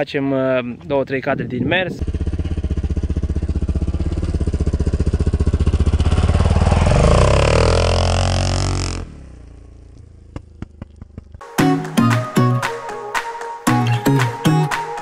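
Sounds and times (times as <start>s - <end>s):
dirt bike accelerating past: 2.0s - 11.4s.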